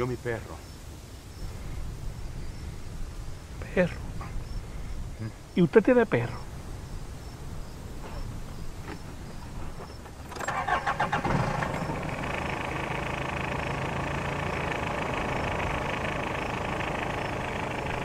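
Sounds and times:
engine idling: 0:09.7 - 0:18.0
starter cranking engine: 0:10.1 - 0:18.0.

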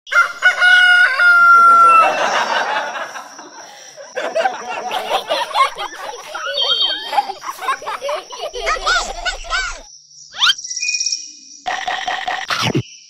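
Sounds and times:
rooster crowing: 0:00.1 - 0:09.8
high chattering voices: 0:01.6 - 0:10.5.

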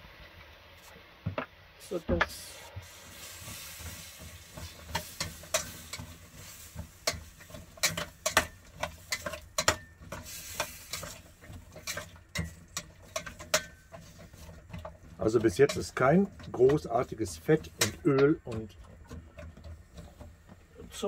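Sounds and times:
pot sizzling hiss: 0:01.8 - 0:18.2
metal spatula scraping steel pot: 0:03.0 - 0:21.0.

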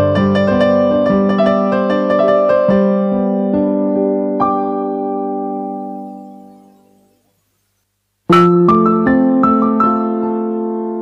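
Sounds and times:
slow piano melody: 0:00.0 - 0:07.3, 0:08.3 - 0:11.0.

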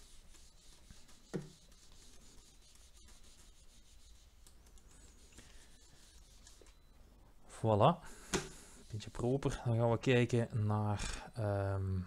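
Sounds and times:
eraser rubbing whiteboard: 0:00.0 - 0:06.8.

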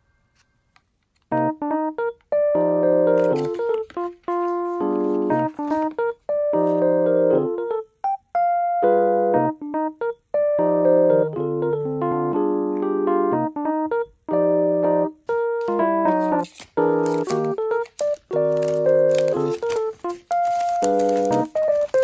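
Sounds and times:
electric piano chords: 0:01.3 - 0:22.0.

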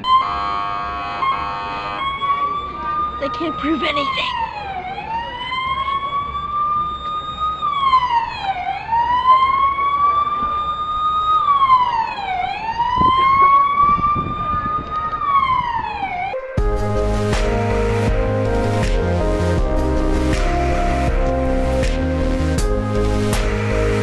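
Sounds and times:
police siren wailing: 0:00.0 - 0:24.0
music with steady beat: 0:16.4 - 0:24.0.

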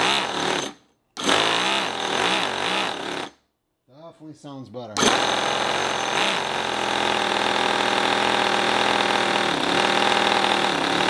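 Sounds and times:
model engine running: 0:06.2 - 0:11.0.

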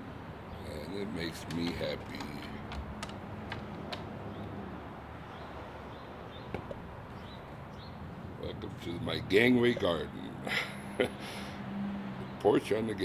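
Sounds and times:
outdoor background hiss: 0:00.0 - 0:13.0
light clicks: 0:01.2 - 0:04.5.

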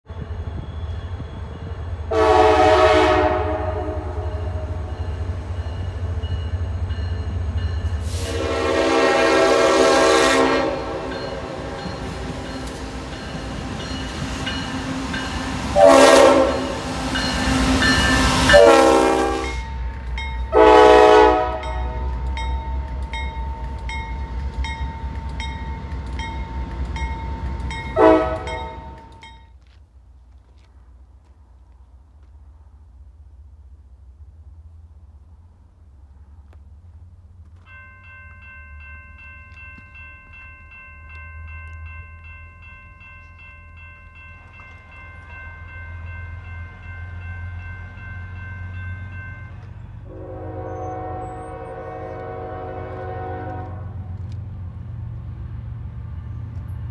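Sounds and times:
railroad crossing bell ringing: 0:00.2 - 0:29.8, 0:37.5 - 0:53.6
locomotive air horn blasts: 0:02.1 - 0:04.9, 0:08.0 - 0:12.4, 0:15.7 - 0:17.0, 0:18.2 - 0:19.8, 0:20.5 - 0:22.1, 0:27.9 - 0:28.8, 0:50.0 - 0:54.2.

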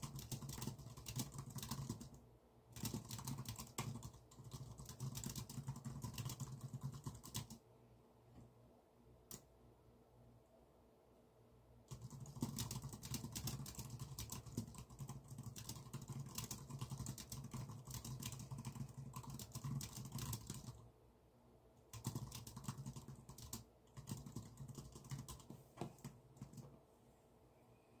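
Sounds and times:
typing on computer keyboard: 0:00.0 - 0:07.6, 0:11.9 - 0:20.8, 0:21.9 - 0:26.7.

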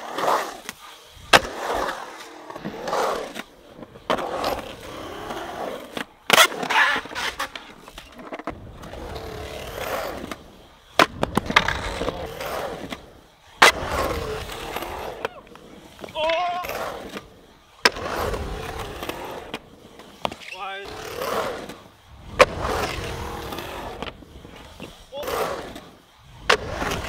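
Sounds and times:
skateboard clacks: 0:00.0 - 0:20.5, 0:21.2 - 0:27.0
skateboard wheels rolling on concrete: 0:00.0 - 0:27.0
skateboard crash: 0:01.2 - 0:03.4, 0:21.3 - 0:27.0.

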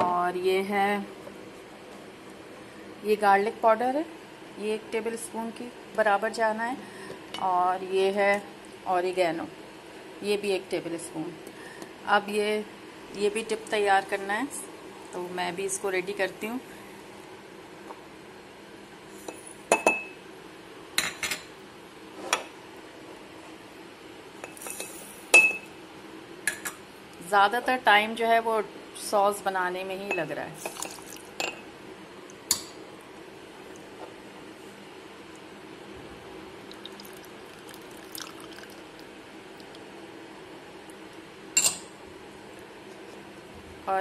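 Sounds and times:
sugar pouring into glass jar: 0:30.6 - 0:31.2, 0:36.7 - 0:38.8
milk trickling into bowl: 0:30.7 - 0:31.3, 0:36.6 - 0:39.8.

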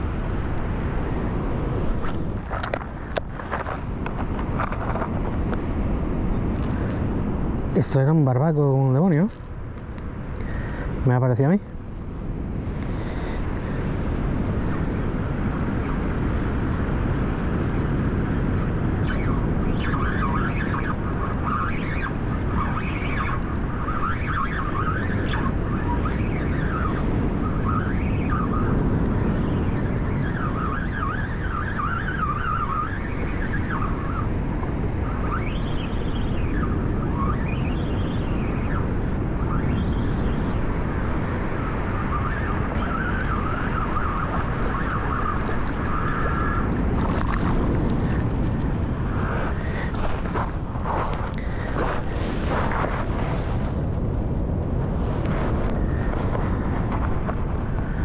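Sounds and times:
wind rumble on microphone: 0:00.0 - 0:58.0
fishing reel drag whine: 0:17.7 - 0:53.8.

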